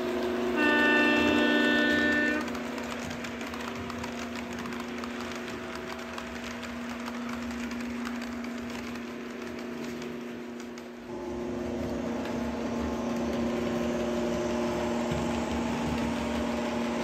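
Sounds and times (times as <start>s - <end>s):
model train motor hum: 0.0s - 17.0s
wheels clicking over rails: 0.0s - 17.0s
train horn: 0.4s - 2.9s.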